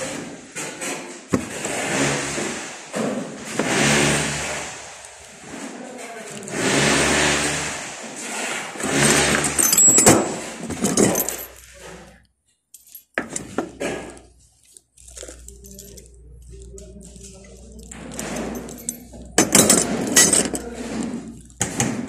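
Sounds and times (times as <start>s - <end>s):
rustling: 8.2s - 21.6s
metal hand tools clinking: 8.8s - 11.9s, 15.0s - 21.6s.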